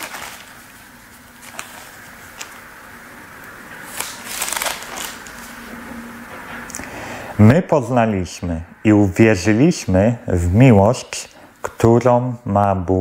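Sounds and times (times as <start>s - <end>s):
thin pages turning: 0.0s - 2.7s, 3.8s - 5.7s.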